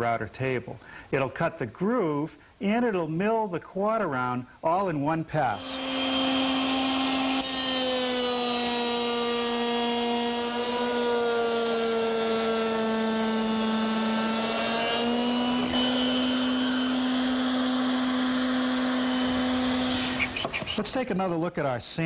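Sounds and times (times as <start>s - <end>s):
router high whine: 5.5s - 20.8s.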